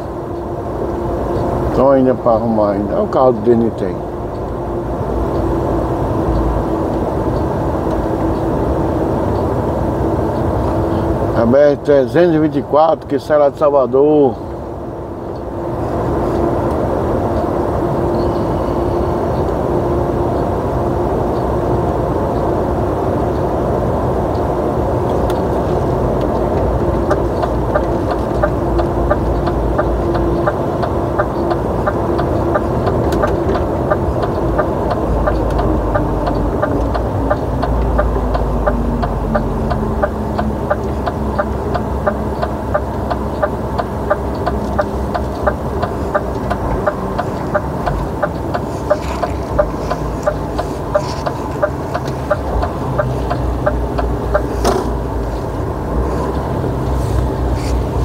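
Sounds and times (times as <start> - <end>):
truck engine on highway: 0.0 - 58.0
regular ticking: 25.3 - 54.5.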